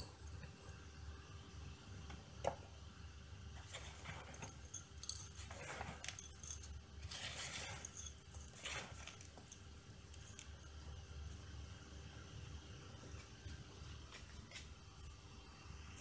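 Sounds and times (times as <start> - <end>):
faint low hum: 0.0 - 16.0
hands scraping soil: 3.6 - 11.5.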